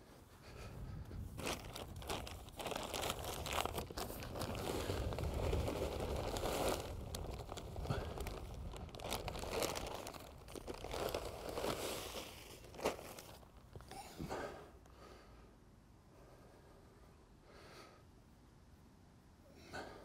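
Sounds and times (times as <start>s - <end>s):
soil crunching and scraping: 1.0s - 13.9s
bag crinkling and rustling: 1.3s - 13.9s.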